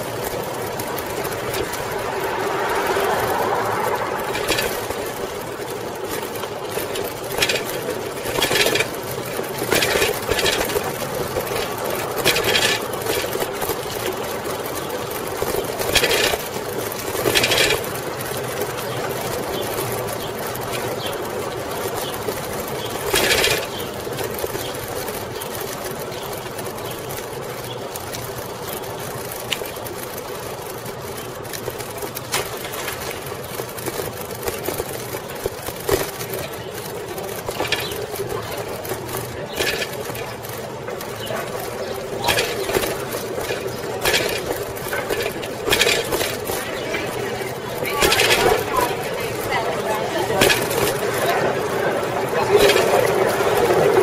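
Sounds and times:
bicycle whirring and rattling: 0.0s - 54.0s
loud rushes of noise: 0.7s - 6.4s.

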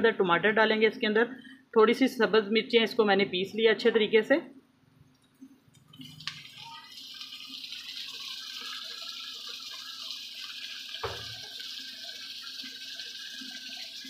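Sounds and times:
knock: 11.0s - 11.4s.

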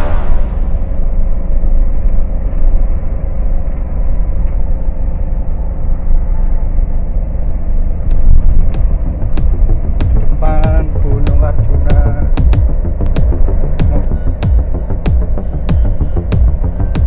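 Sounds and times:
car tyres and engine rumbling: 0.0s - 17.0s.

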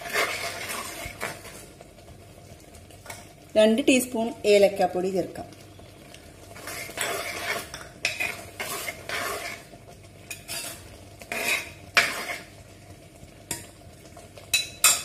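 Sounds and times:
metal spoon scraping pot: 0.0s - 1.5s, 6.6s - 9.7s, 10.3s - 12.5s.

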